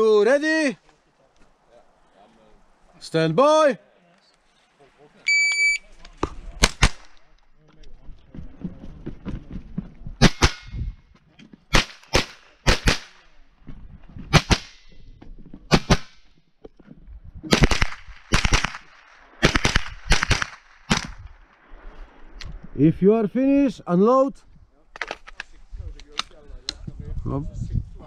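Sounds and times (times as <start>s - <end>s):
rifle shots: 6.6s - 7.2s, 10.2s - 10.8s, 11.7s - 13.2s, 14.3s - 14.9s, 17.5s - 21.2s.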